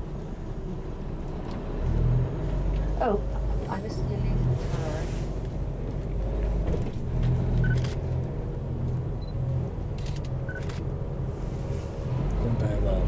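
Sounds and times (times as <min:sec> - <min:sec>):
bus engine running: 0:00.0 - 0:13.0
road rumble: 0:00.0 - 0:13.0.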